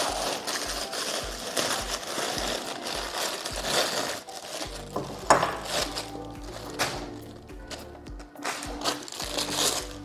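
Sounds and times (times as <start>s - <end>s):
background music: 0.0s - 10.0s
plastic packaging crinkling: 0.0s - 10.0s.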